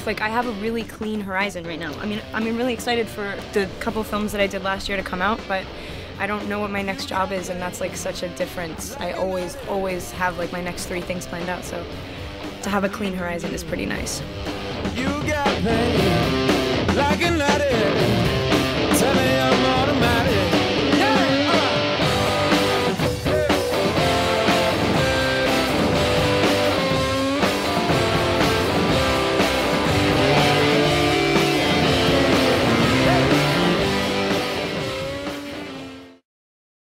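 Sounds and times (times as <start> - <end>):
rock song with guitar and vocals: 14.2 - 36.2.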